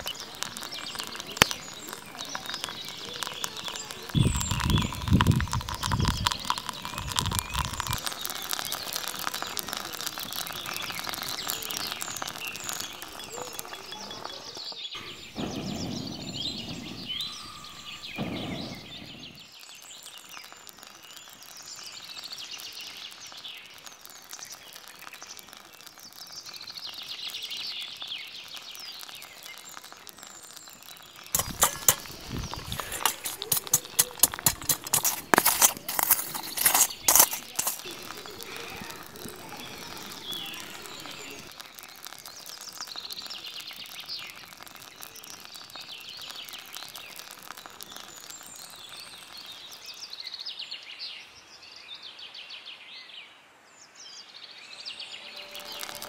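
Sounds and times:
stick pounding charcoal in iron pan: 0:00.0 - 0:13.6, 0:31.2 - 0:49.0
songbirds chirping: 0:00.0 - 0:56.0.

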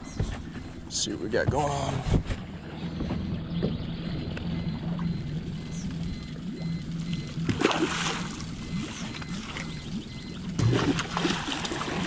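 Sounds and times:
water splashing: 0:04.8 - 0:12.0.

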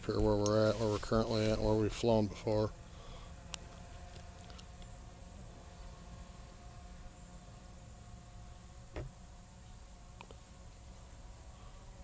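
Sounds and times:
soft knock: 0:08.9 - 0:09.1.

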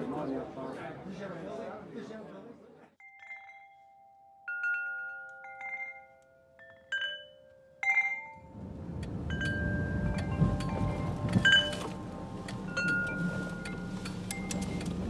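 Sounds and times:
chimes ringing: 0:03.0 - 0:08.6, 0:09.3 - 0:15.0
car cabin rumble: 0:08.6 - 0:15.0.

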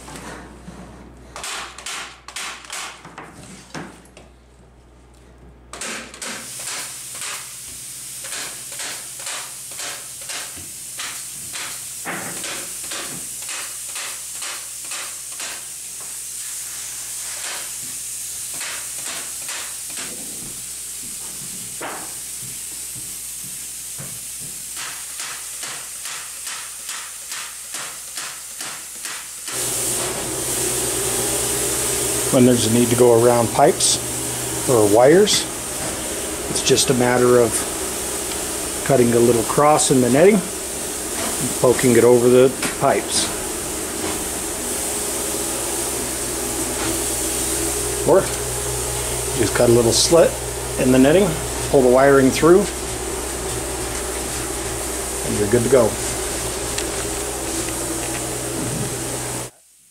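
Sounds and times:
pneumatic staple gun firing: 0:01.4 - 0:03.0, 0:05.7 - 0:16.2, 0:17.3 - 0:17.9, 0:18.5 - 0:20.2, 0:24.6 - 0:30.4
steady air hiss: 0:05.9 - 0:59.9.

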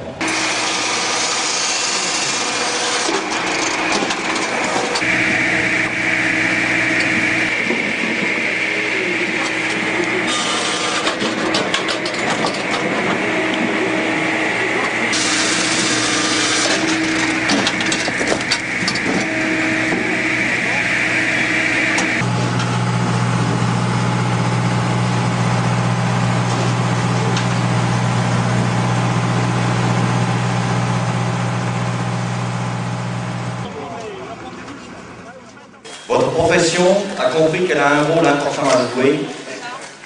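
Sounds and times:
machine droning: 0:00.0 - 0:38.0
harsh sawing of logs: 0:00.2 - 0:11.5, 0:12.8 - 0:23.5.

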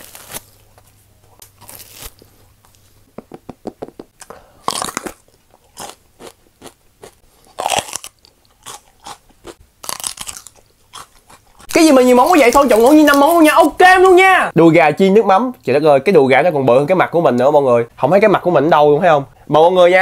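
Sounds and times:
crisp pepper crunches: 0:00.0 - 0:02.2, 0:04.6 - 0:13.5
chewing: 0:04.7 - 0:11.8.

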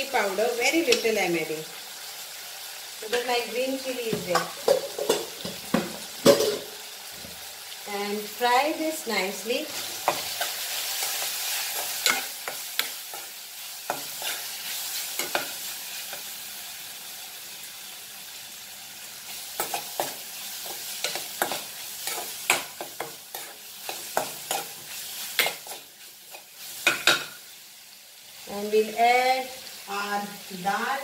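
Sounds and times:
food sizzling in oil: 0:00.0 - 0:31.0
metal spoon scraping pan: 0:09.7 - 0:13.3, 0:13.9 - 0:16.2, 0:19.6 - 0:27.3.

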